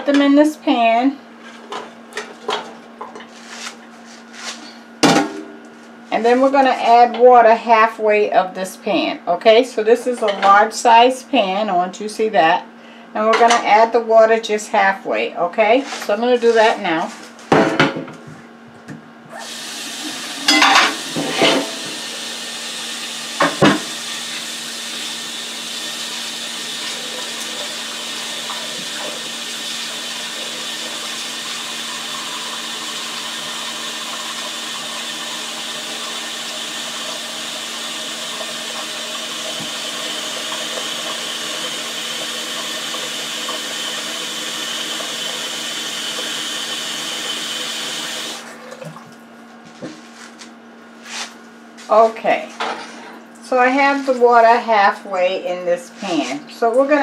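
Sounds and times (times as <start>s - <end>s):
tap water filling metal pot: 19.4s - 22.1s, 23.4s - 49.2s.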